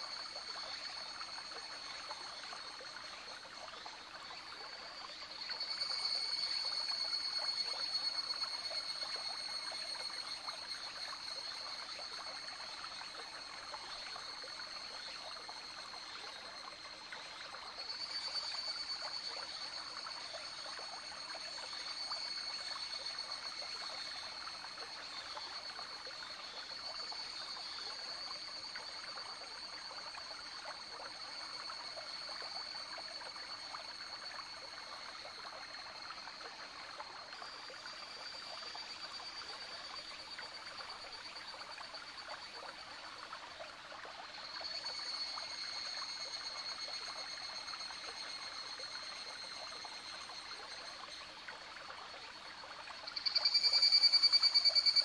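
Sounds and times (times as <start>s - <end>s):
stream trickling and babbling: 0.0s - 55.0s
cicadas calling: 53.1s - 55.0s.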